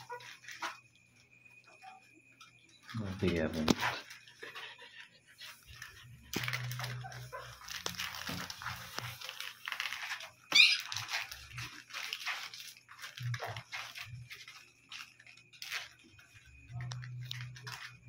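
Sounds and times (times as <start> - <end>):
puppies whimpering and squeaking: 0.0 - 0.8, 4.0 - 12.6
puppy high squeal: 10.5 - 11.2.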